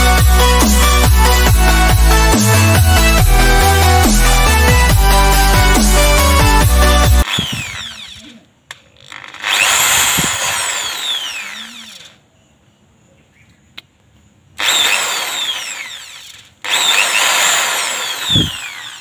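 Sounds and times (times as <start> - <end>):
drill motor whine: 6.0 - 8.3, 9.1 - 12.2, 14.6 - 19.0.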